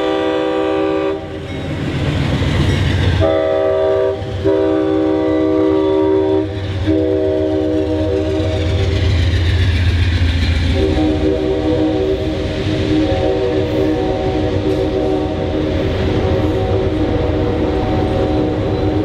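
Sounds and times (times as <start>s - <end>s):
locomotive horn blasts: 0.0s - 1.4s, 3.2s - 8.7s, 10.7s - 19.0s
train rumbling past: 0.0s - 19.0s.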